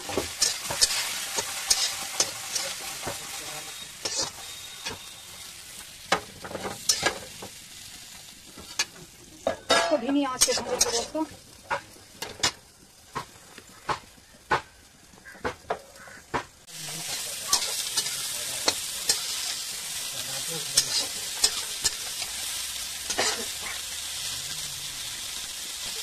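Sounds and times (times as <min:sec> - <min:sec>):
metal spatula scraping a pan: 0:00.0 - 0:07.5, 0:08.6 - 0:12.6, 0:16.8 - 0:23.8
steady hiss: 0:00.0 - 0:26.0.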